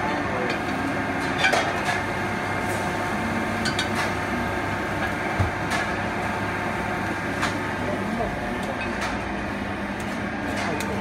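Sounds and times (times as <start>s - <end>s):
kitchen machine hum: 0.0s - 11.0s.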